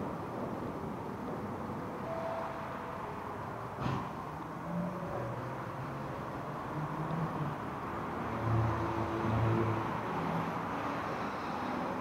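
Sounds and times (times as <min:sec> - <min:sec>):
cars passing: 0:00.0 - 0:12.0
engine hum: 0:00.0 - 0:12.0.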